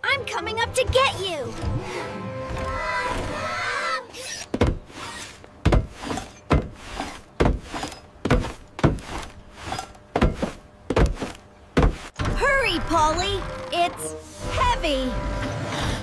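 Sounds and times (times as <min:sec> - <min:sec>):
heavy cartoon clunks: 0:05.6 - 0:14.2.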